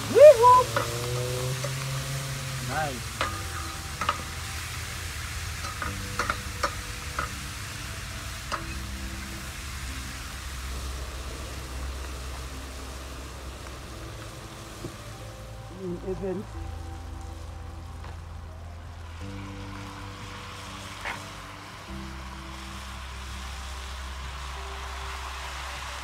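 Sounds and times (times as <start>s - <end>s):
butter sizzling in a pot: 0.0s - 26.0s.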